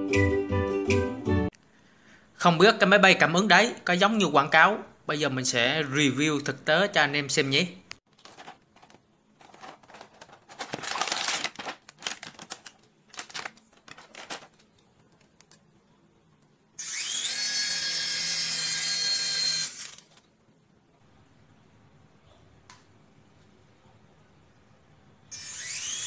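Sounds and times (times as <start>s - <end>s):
plastic packaging rustling: 8.1s - 15.6s, 19.8s - 20.3s
small toy motors whining: 16.8s - 20.0s, 25.3s - 26.0s.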